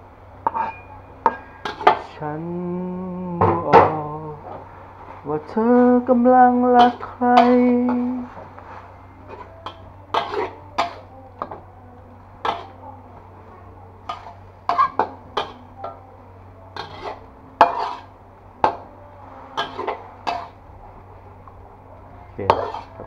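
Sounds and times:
metal spatula scraping wok: 0.4s - 2.1s, 4.5s - 11.6s, 12.4s - 16.0s, 16.7s - 20.6s, 22.4s - 23.0s.

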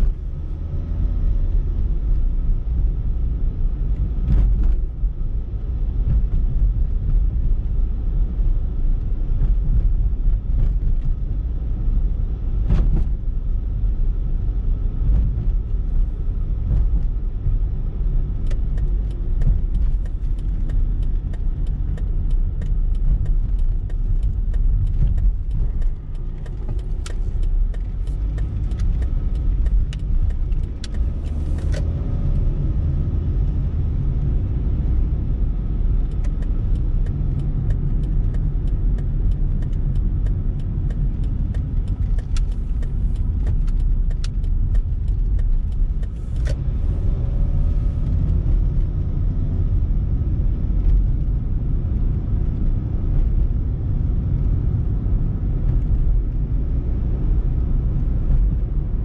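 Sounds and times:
car engine and tyres rumbling: 0.0s - 59.0s
light regular clicks: 18.4s - 32.5s, 36.0s - 46.8s.

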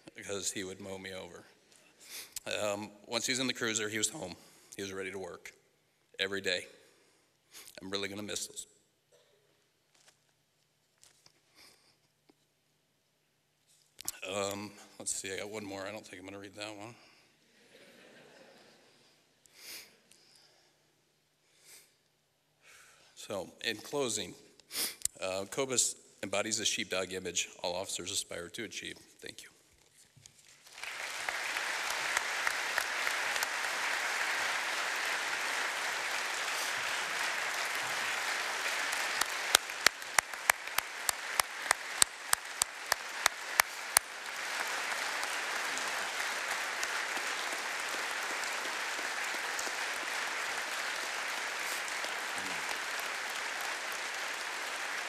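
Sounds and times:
audience applauding: 30.5s - 55.0s.

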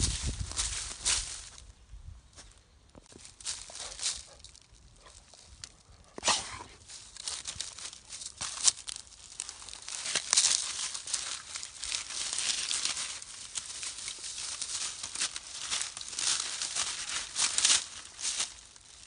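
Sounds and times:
dry leaves crackling and rustling: 0.0s - 1.7s, 3.0s - 5.8s, 6.8s - 19.0s.

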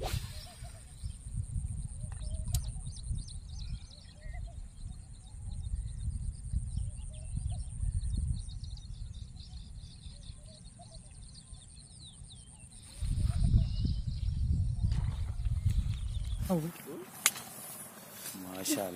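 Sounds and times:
high-pitched hiss: 0.0s - 1.2s
small birds chirping: 0.0s - 18.9s
wind buffeting microphone: 0.0s - 18.9s.

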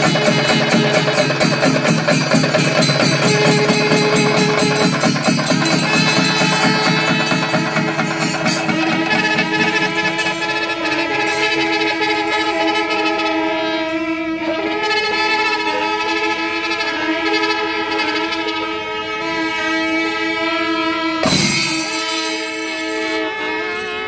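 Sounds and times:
rapid drum strokes: 0.0s - 13.1s, 21.2s - 23.4s
horns blaring long notes: 0.0s - 24.0s.

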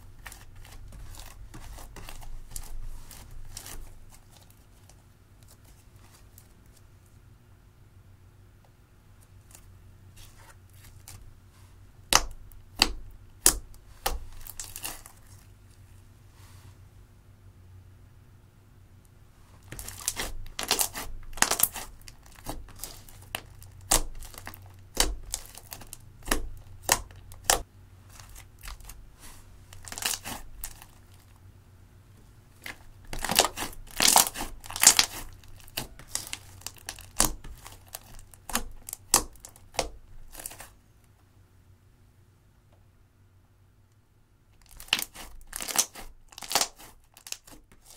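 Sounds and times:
slime squished by hand: 19.6s - 27.6s, 29.8s - 30.9s, 32.6s - 40.7s, 44.7s - 47.9s.

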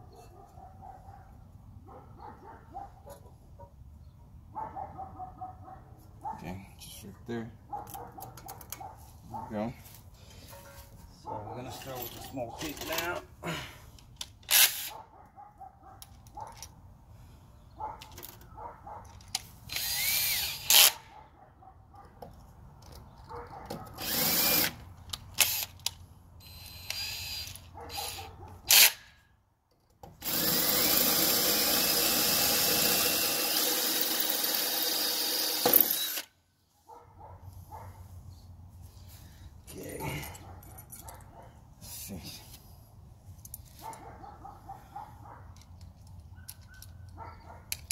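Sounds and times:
cordless drill drilling into brick: 14.5s - 14.9s, 19.7s - 21.0s, 24.0s - 24.8s, 25.4s - 25.7s, 26.4s - 29.0s, 30.2s - 36.3s.

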